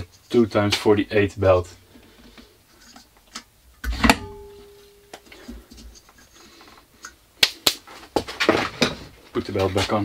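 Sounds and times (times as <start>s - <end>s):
metal part ringing: 4.0s - 5.2s.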